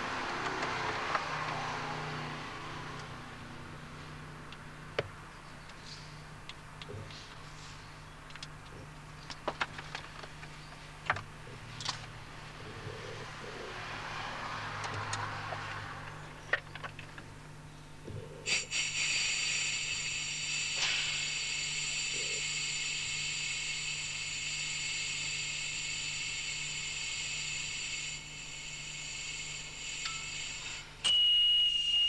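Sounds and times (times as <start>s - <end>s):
shrill warning whistle: 29.8s - 32.0s.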